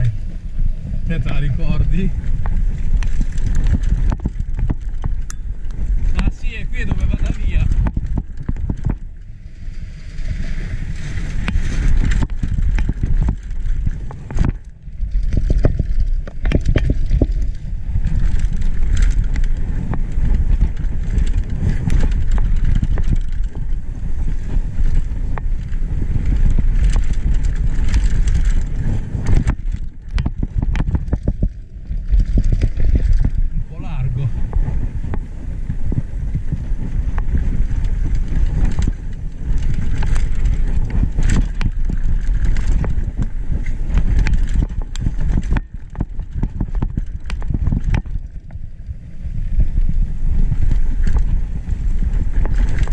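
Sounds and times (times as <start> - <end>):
bike chain rattling over bumps: 0.0 - 52.9
bike tyres rumbling over dirt: 0.0 - 52.9
wind buffeting microphone: 0.0 - 52.9.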